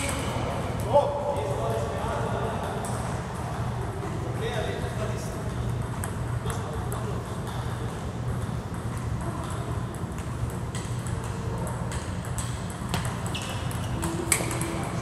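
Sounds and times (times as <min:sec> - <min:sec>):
table tennis balls bouncing: 0:00.0 - 0:01.0, 0:02.4 - 0:15.0.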